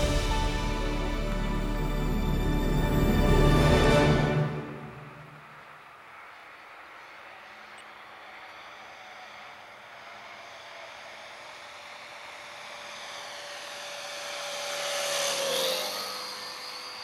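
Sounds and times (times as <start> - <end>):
model plane propeller drone: 5.0 - 17.0.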